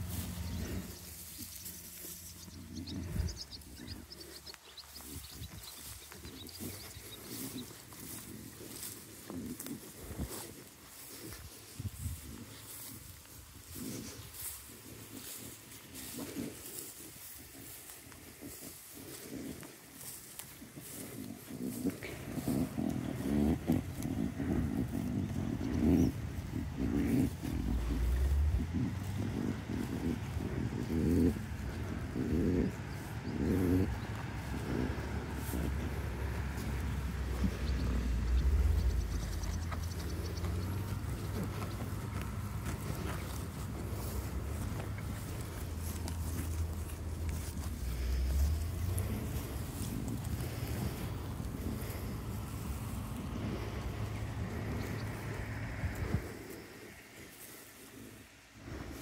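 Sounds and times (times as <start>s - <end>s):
deep rumble: 0.0s - 10.3s, 22.0s - 56.4s
sheep tearing and chewing grass: 0.0s - 59.0s.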